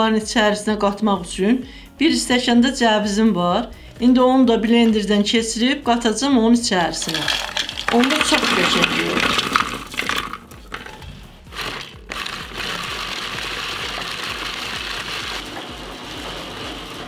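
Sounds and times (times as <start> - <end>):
hand-cranked chopper whirring: 7.0 - 17.0
walnuts rattling into plastic chopper: 7.0 - 17.0.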